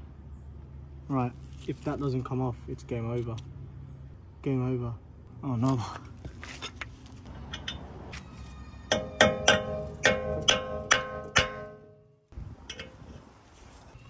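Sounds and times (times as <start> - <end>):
hammer striking metal tool: 8.9 - 12.1.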